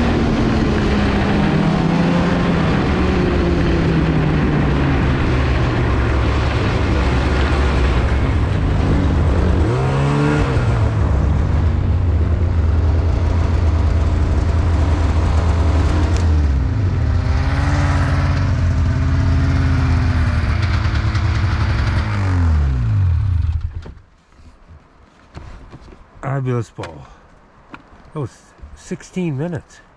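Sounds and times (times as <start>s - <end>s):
snowmobile engine running: 0.0s - 23.7s.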